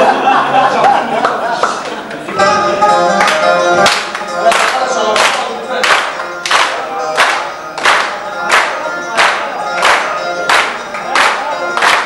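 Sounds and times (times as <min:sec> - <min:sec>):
music and singing: 0:00.0 - 0:12.0
men clapping in unison: 0:01.2 - 0:02.0, 0:03.1 - 0:12.0.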